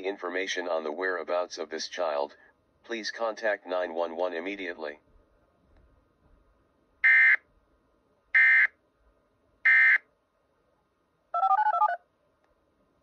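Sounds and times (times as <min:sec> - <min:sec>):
touch-tone beeps: 0:11.4 - 0:12.0.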